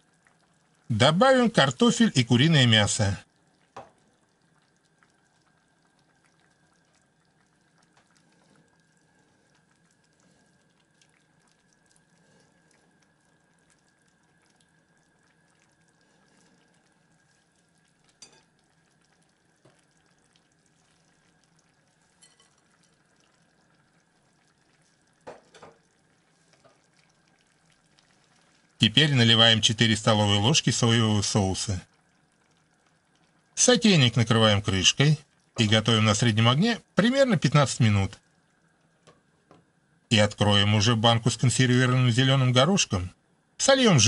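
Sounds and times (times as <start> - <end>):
low steady hiss: 0.0 - 44.0.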